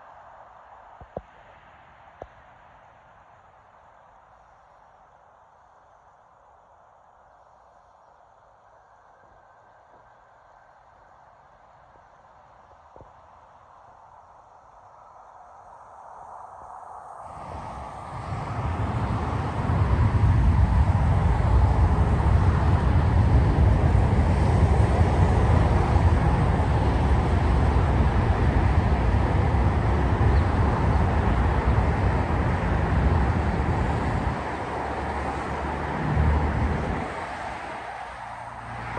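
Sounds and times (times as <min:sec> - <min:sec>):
jet engines roaring: 0:17.3 - 0:38.9.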